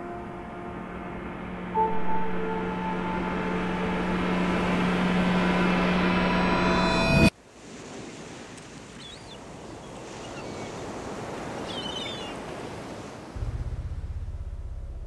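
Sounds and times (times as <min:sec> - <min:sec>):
low pulsing drone: 0:00.0 - 0:07.3, 0:13.4 - 0:15.0
sea waves washing on shore: 0:07.3 - 0:13.4.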